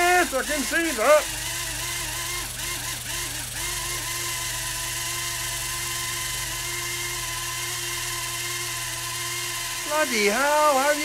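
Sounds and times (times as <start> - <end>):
helicopter motor and rotor whine: 0.0 - 4.4, 9.7 - 11.0.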